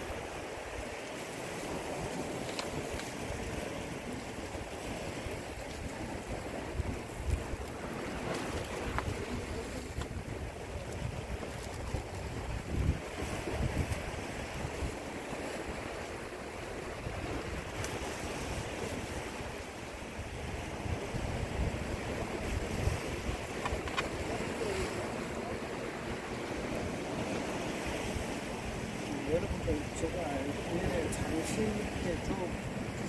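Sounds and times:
surf washing against rocks: 0:00.0 - 0:33.0
wind gusting on microphone: 0:00.0 - 0:33.0
faint clicks: 0:02.4 - 0:03.2.

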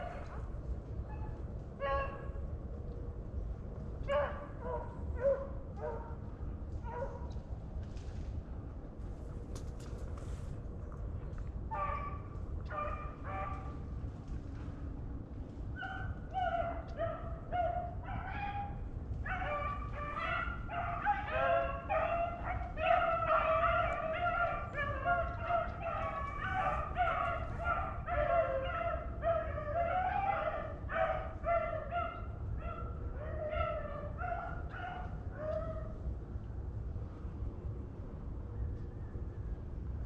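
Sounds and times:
hounds baying: 0:04.1 - 0:06.1, 0:11.7 - 0:13.8, 0:15.7 - 0:36.0.

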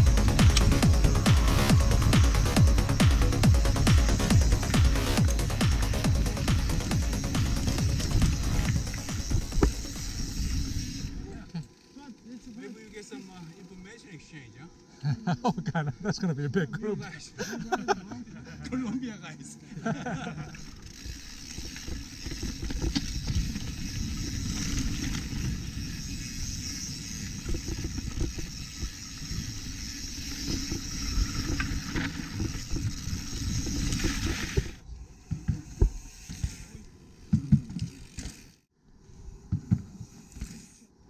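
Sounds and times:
wind and tyres rushing: 0:00.0 - 0:11.9, 0:20.6 - 0:41.0
bike knocking and rattling: 0:00.0 - 0:14.0, 0:19.9 - 0:38.7, 0:39.5 - 0:40.7.

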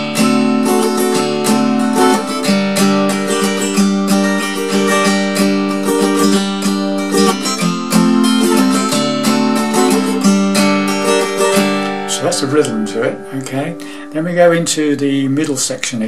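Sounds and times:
acoustic guitar strumming: 0:00.0 - 0:15.8.

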